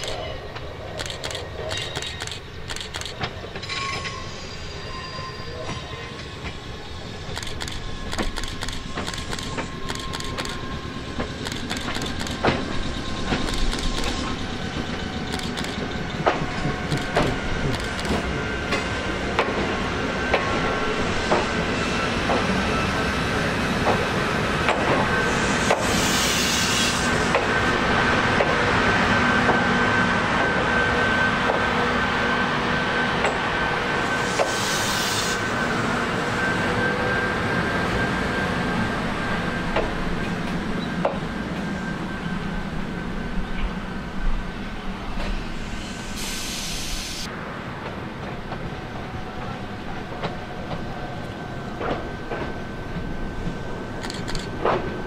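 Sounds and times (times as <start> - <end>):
train clicking over rail joints: 0.0 - 4.1, 7.3 - 19.7
high-pitched squeal: 1.0 - 18.9.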